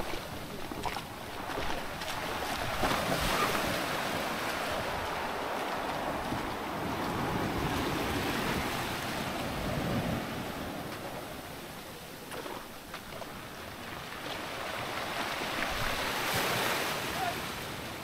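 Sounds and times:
small surf breaking: 0.0s - 11.4s
wind on microphone: 12.5s - 16.8s.

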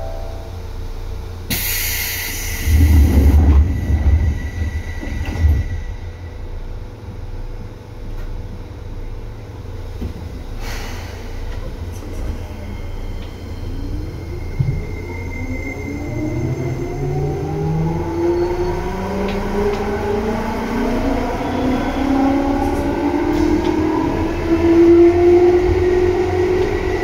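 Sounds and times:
train rumbling with knocks: 1.4s - 27.0s
train air hiss: 1.5s - 3.4s, 10.5s - 13.0s.

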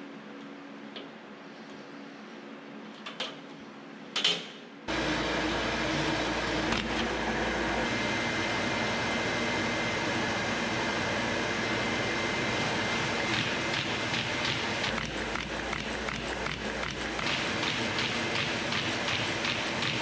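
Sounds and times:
paper folding machine running: 4.9s - 20.0s.

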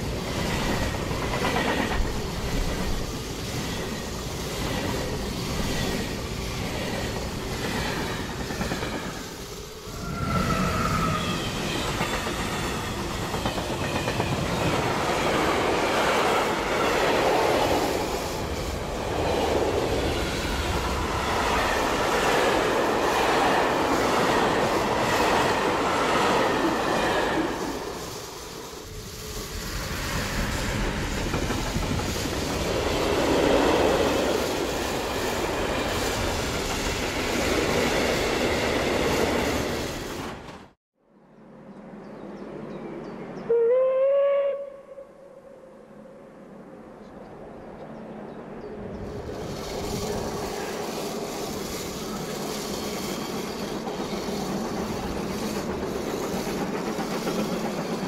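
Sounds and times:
toy train whirring rattle on track: 49.1s - 58.0s.

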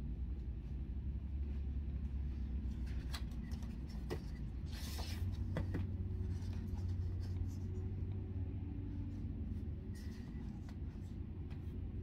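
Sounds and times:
steady low hum: 0.0s - 12.0s
book pages turning: 2.5s - 8.1s, 9.0s - 11.8s.

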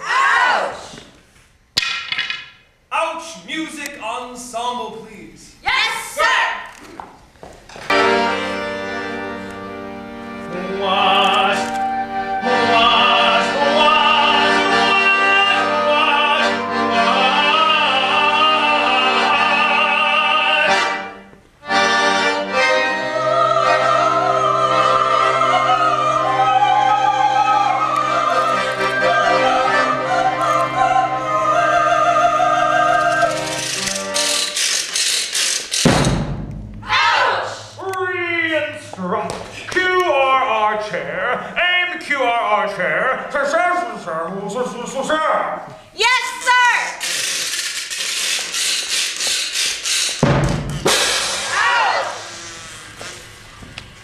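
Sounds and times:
opera chorus singing: 10.4s - 21.2s, 22.1s - 34.6s.

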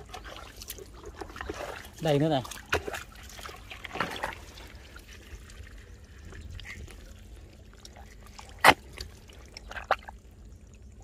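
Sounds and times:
squelching wet mud: 0.0s - 11.0s
sharp wet smack: 8.6s - 9.1s.

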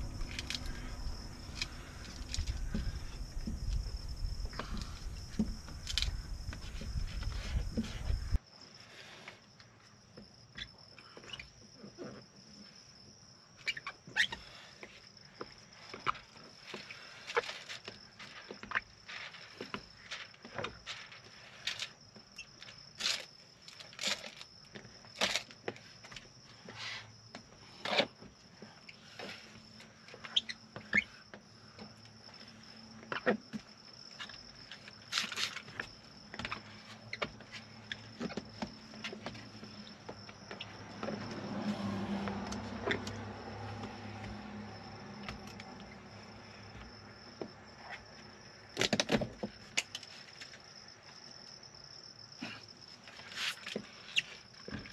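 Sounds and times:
low hum: 0.0s - 8.4s
high insect trill: 0.0s - 8.8s, 10.2s - 54.9s.

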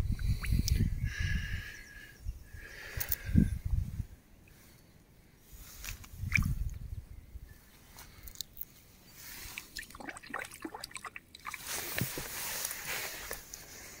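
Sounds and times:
water dripping and splashing: 9.5s - 12.1s.

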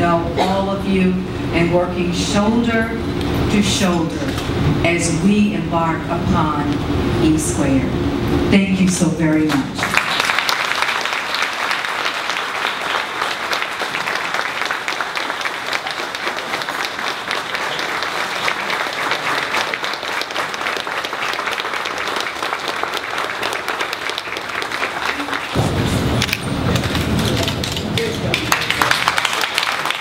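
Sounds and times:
audience applauding: 9.8s - 30.0s.

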